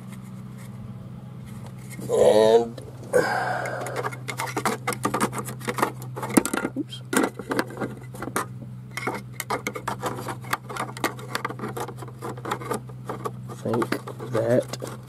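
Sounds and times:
plastic clicks and rattles: 3.8s - 8.4s, 9.0s - 15.0s.

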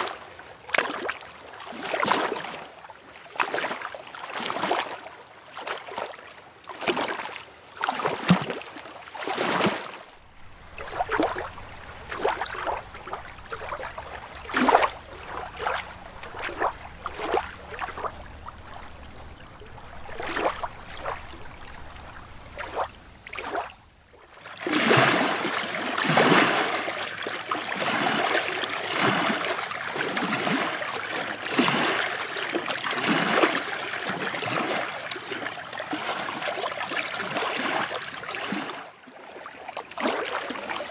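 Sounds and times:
water lapping and splashing: 0.0s - 40.9s.

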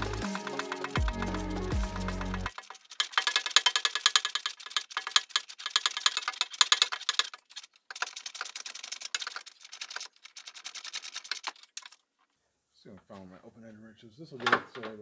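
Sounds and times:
socket ratchet clicking: 0.0s - 9.4s.

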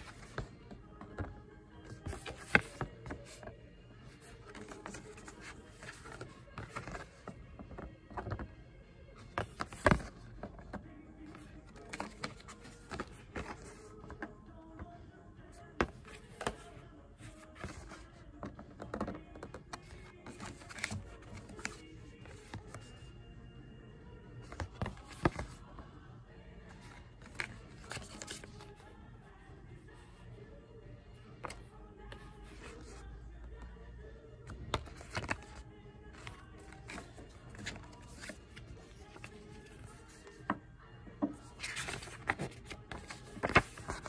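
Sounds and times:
faint background music: 0.0s - 44.0s.

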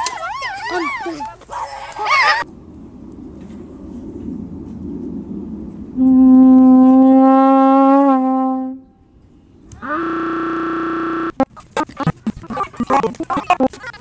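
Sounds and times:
horn-like held notes: 9.8s - 11.4s.

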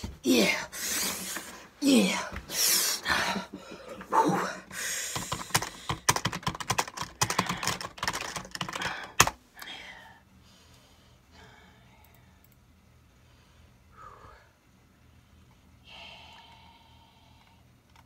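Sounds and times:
typing on keyboard: 5.2s - 9.4s.

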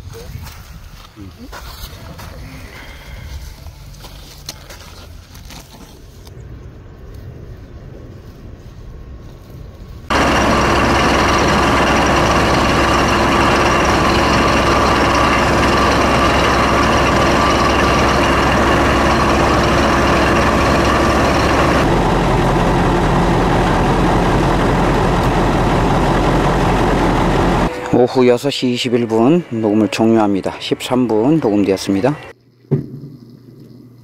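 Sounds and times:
drilling rig engine running: 10.1s - 32.3s.

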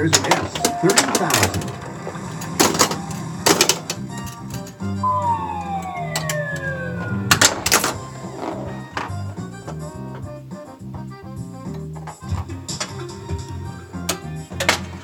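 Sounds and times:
pinball playfield clacks: 0.0s - 4.8s
pinball game music: 0.3s - 9.3s
sound effect sliding down in pitch: 5.0s - 8.8s.

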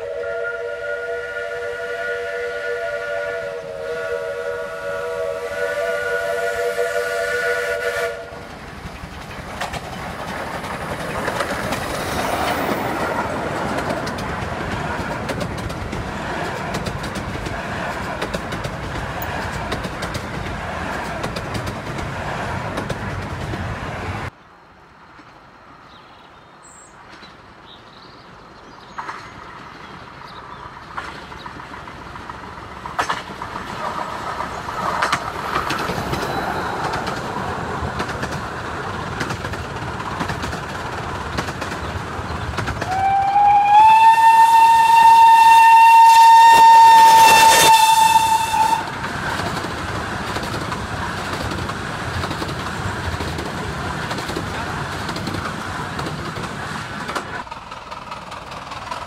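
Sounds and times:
steam whistle: 0.0s - 8.4s, 42.8s - 49.0s
wheels rattling on rails: 8.0s - 24.3s, 28.6s - 59.0s.

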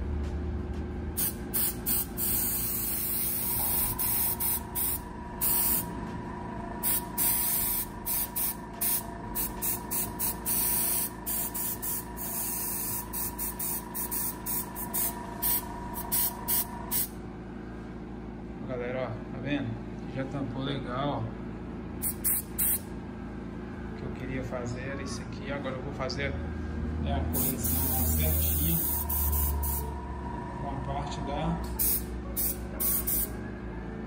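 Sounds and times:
steady hum: 0.0s - 34.0s
airbrush hissing bursts: 1.2s - 5.9s, 6.8s - 17.1s, 22.0s - 22.8s, 27.3s - 29.9s, 31.8s - 33.3s.

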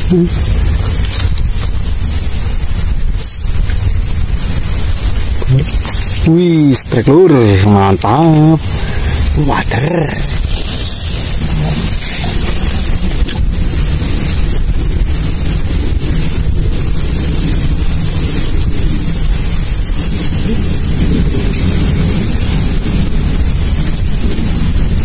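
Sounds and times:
wind buffeting microphone: 0.0s - 25.0s.

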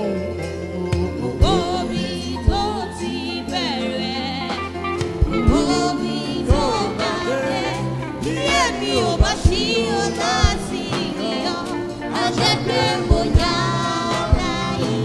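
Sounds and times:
man singing into microphone: 0.0s - 4.0s, 5.3s - 11.6s
band with bass and drums: 0.0s - 15.0s.

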